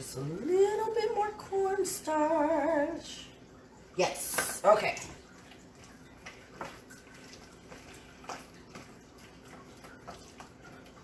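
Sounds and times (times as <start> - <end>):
hand squishing raw meat: 5.4 - 10.8.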